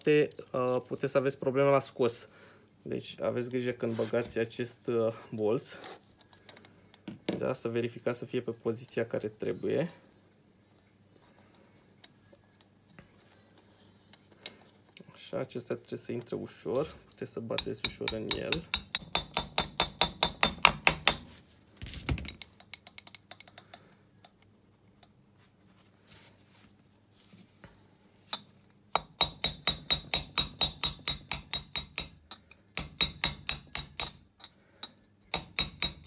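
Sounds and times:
hammer tapping on metal: 17.6 - 21.2, 28.9 - 34.2, 35.3 - 36.0.

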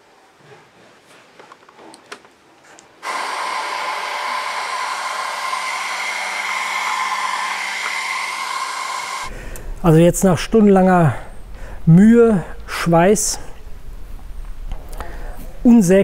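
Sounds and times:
heat gun blowing with whine: 3.0 - 9.3.

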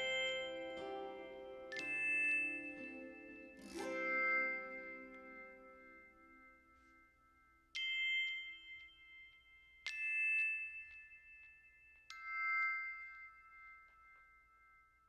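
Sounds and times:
struck bell-like notes: 0.0 - 9.5.

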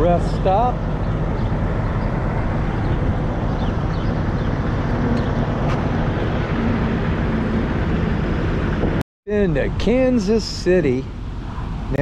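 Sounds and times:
road traffic: 0.0 - 12.0
wind buffeting microphone: 0.4 - 9.0.

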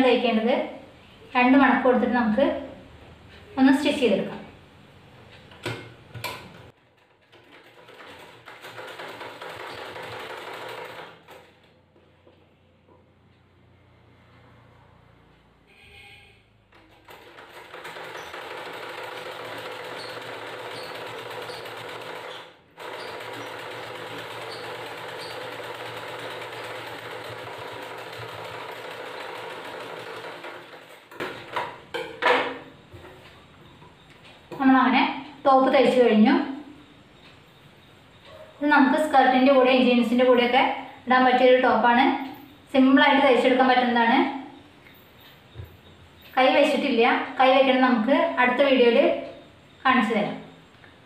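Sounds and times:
sewing machine stitching: 5.6 - 11.7, 16.7 - 32.5.

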